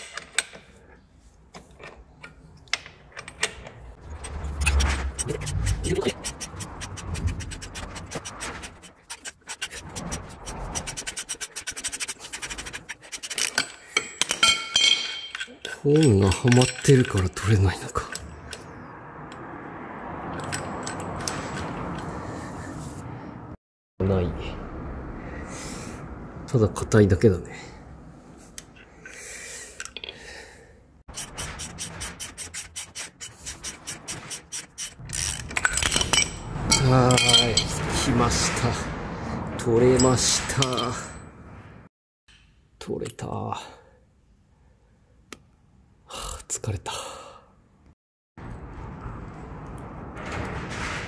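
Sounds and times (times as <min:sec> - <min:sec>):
wrench metallic clicks and scraping: 0:00.0 - 0:00.8, 0:01.5 - 0:19.4, 0:31.1 - 0:38.0.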